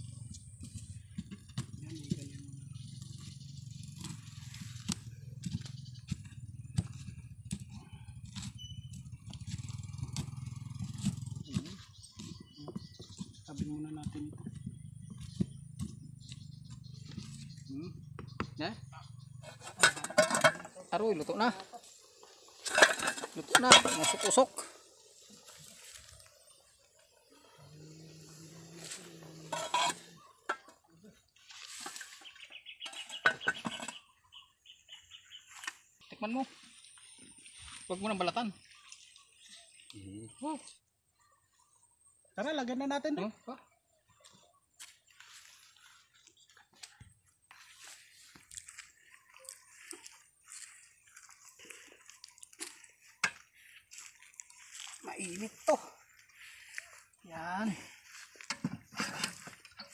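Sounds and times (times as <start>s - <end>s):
bird chirps: 0.0s - 58.4s
metal lid clanking on pot: 19.4s - 20.7s, 22.6s - 24.5s, 29.5s - 30.8s, 32.9s - 34.0s.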